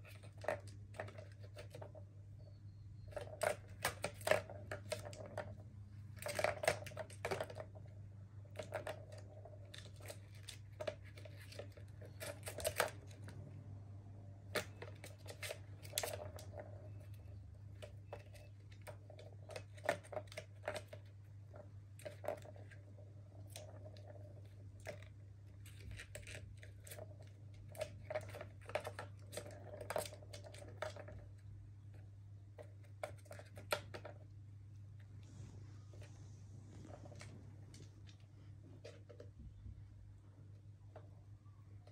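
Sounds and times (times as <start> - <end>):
ball rolling round plastic track: 0.0 - 13.8, 14.4 - 41.9
steady low hum: 34.3 - 41.6.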